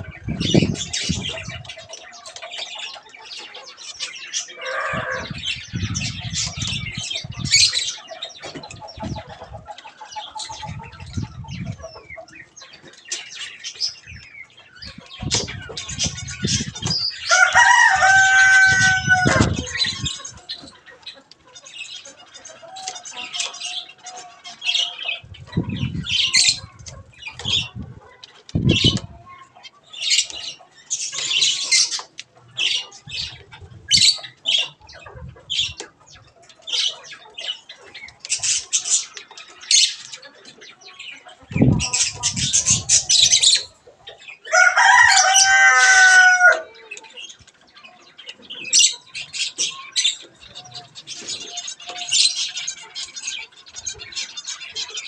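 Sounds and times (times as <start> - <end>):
rooster crowing: 4.6 - 5.4, 17.2 - 19.7, 44.5 - 46.8.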